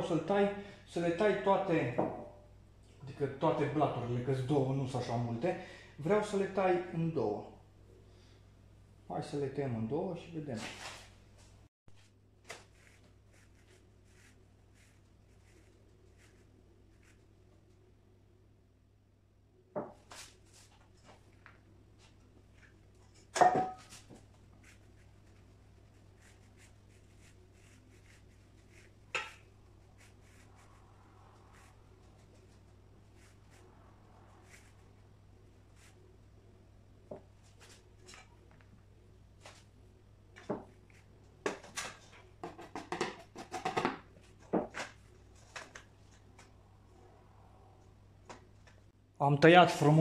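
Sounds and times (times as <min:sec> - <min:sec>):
cake ring and board knocking and scraping: 0:29.1 - 0:29.4.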